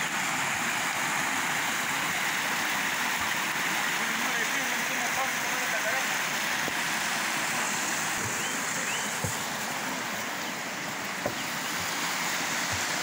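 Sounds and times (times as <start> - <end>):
mountain stream rushing: 0.0 - 13.0
soft knocks: 9.1 - 9.6.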